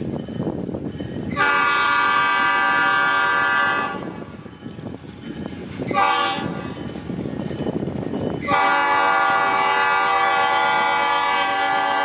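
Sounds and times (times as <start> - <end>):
locomotive air horn: 1.3 - 4.2, 5.9 - 6.6, 8.4 - 12.0.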